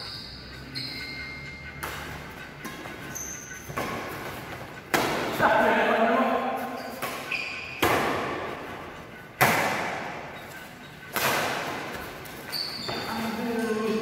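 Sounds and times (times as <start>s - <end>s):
rackets hitting shuttlecock: 1.8s - 5.5s, 6.6s - 8.7s, 9.4s - 10.3s, 11.1s - 13.1s.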